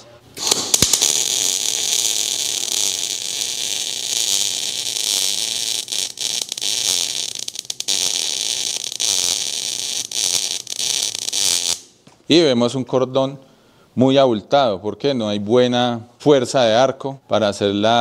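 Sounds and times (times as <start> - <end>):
welding arc crackling hiss: 0.4 - 12.0
welding arc sharp pops: 0.4 - 12.2.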